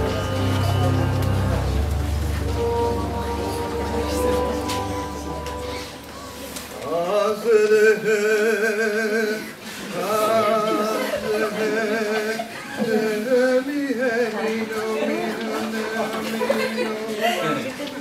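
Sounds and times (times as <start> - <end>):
low music drone: 0.0 - 6.6
person singing with vibrato: 0.0 - 17.4.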